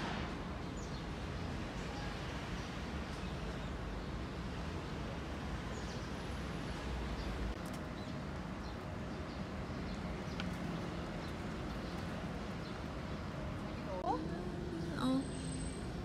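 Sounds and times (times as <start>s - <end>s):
distant traffic hum: 0.0s - 16.0s
small birds chirping: 5.6s - 15.4s.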